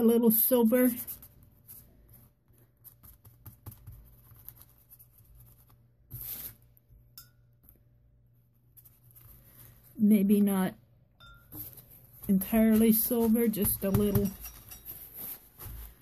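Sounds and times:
paintbrush strokes on paper: 11.5s - 16.0s
paper rustle: 11.6s - 16.0s.

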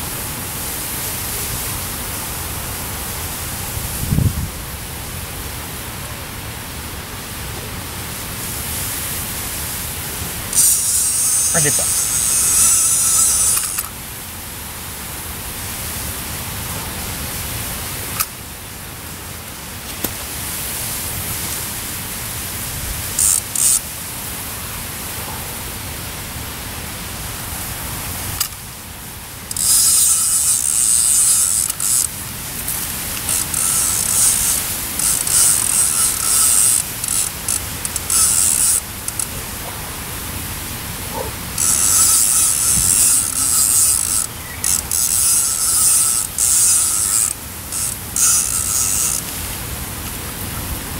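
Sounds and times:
steady hiss: 0.0s - 50.9s
fishing reel whirring: 10.2s - 14.0s, 23.1s - 23.8s, 29.5s - 39.4s, 41.5s - 49.5s.

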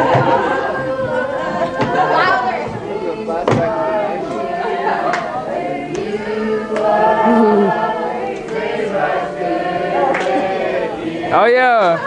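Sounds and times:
group singing worship song: 0.0s - 12.0s.

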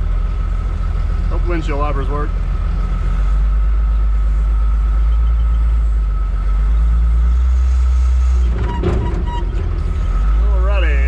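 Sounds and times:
diesel engine running heavily: 0.0s - 11.0s.

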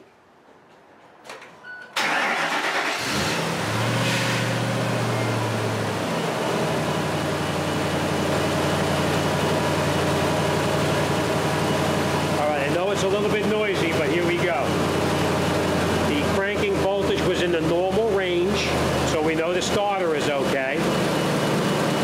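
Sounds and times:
car starter cranking: 2.0s - 3.7s
car engine revving and idling: 2.4s - 22.0s.

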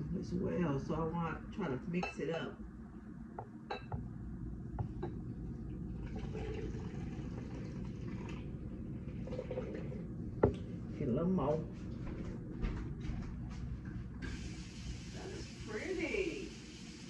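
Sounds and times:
water pouring into glass vase: 5.8s - 10.1s.

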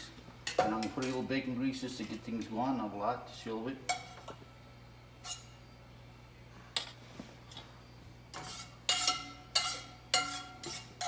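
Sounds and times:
spoon clinking against metal pot: 8.9s - 11.0s.

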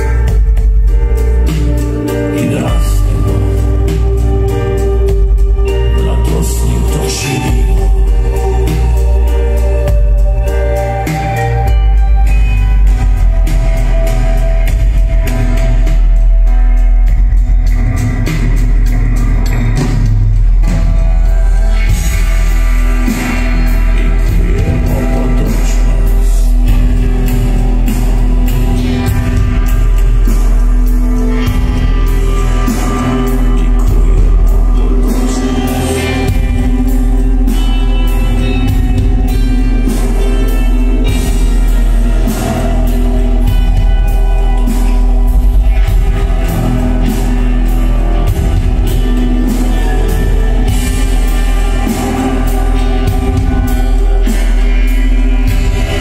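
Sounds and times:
live band playing: 0.0s - 56.0s
man singing: 1.0s - 12.3s, 23.2s - 28.2s, 31.2s - 45.2s.

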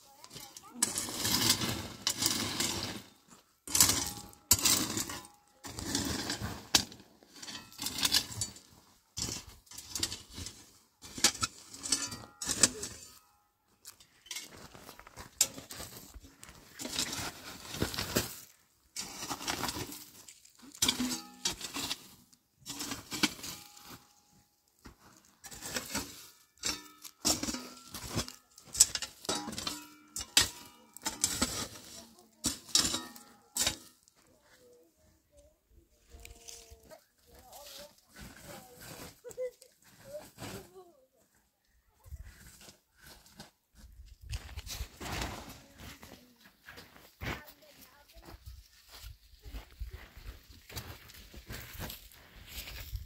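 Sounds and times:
metal rake scraping through gravel: 0.0s - 13.3s, 13.9s - 34.4s, 36.2s - 40.8s, 44.6s - 48.1s.

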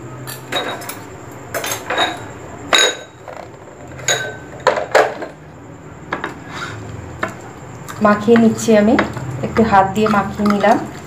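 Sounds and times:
spoon clinking on dishware: 0.2s - 3.2s, 4.0s - 5.0s.

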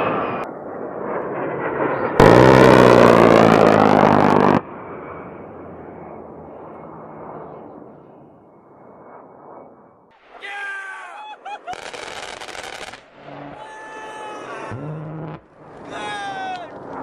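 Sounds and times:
jet engines rushing: 0.0s - 10.7s, 11.6s - 17.0s
rotary cannon firing: 2.2s - 4.6s, 11.7s - 13.3s.

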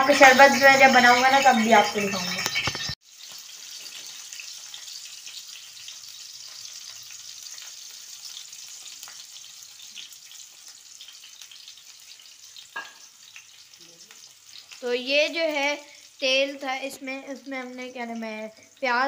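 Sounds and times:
onions sizzling in hot oil: 0.0s - 19.0s.

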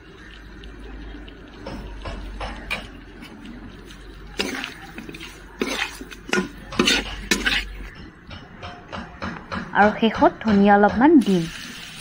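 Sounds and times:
spoon scraping metal pan: 2.5s - 8.2s.

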